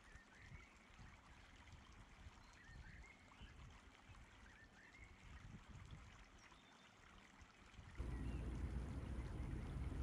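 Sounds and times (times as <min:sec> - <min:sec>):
faint background hiss: 0:08.0 - 0:10.0
low rumble: 0:08.0 - 0:10.0.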